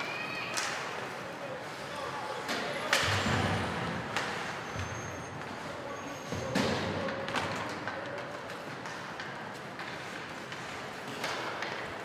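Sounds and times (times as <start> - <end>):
skating and arena noise: 0.0 - 12.0
hockey stick crack: 6.5 - 12.0.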